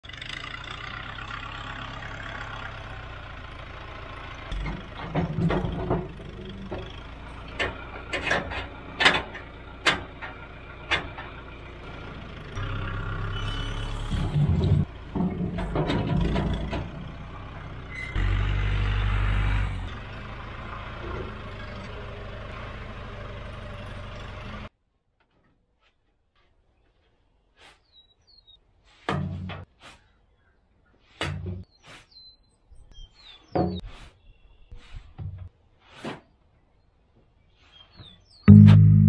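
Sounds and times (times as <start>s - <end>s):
tractor engine running: 0.0s - 24.7s, 38.5s - 39.0s
logs knocking and thudding: 29.0s - 29.7s, 31.2s - 31.7s, 33.5s - 33.9s.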